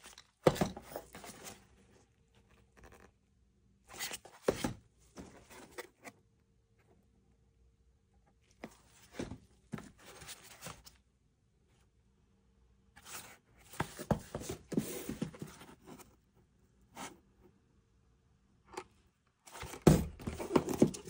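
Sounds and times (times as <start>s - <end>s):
cardboard boxes rustling: 0.0s - 1.8s, 4.0s - 6.0s, 8.6s - 11.0s, 13.0s - 16.1s, 19.5s - 21.0s
boxes sliding on wooden desk: 13.8s - 15.8s, 19.5s - 21.0s.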